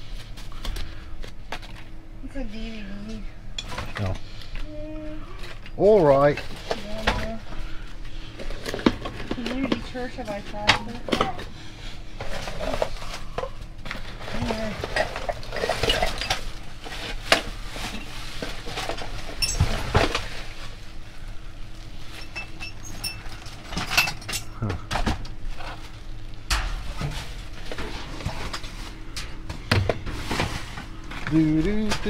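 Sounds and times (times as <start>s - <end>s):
hard objects clinking and clattering: 12.2s - 20.4s, 22.1s - 25.8s.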